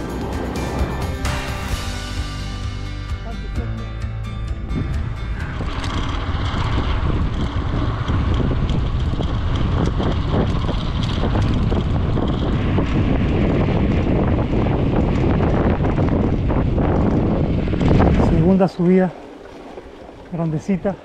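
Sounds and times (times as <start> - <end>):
wind buffeting microphone: 0.0 - 2.4, 3.5 - 21.0.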